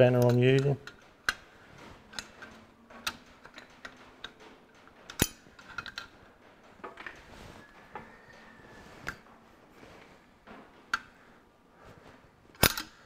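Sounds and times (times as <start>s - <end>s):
spanner clicks on metal fittings: 0.0s - 1.4s, 2.1s - 6.1s, 12.6s - 13.0s.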